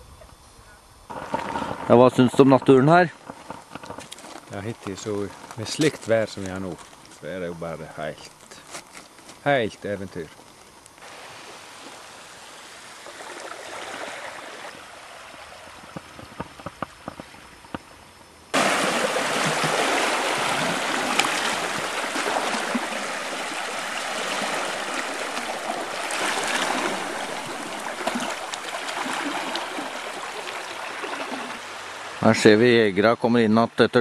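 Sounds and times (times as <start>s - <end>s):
water lapping: 11.0s - 17.4s, 18.6s - 32.4s
waves splashing on rocks: 18.6s - 32.0s.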